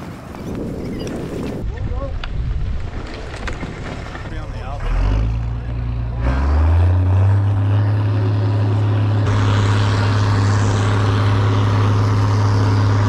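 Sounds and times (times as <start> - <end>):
diesel engine droning: 3.3 - 13.0
rushing snow and air: 8.3 - 13.0.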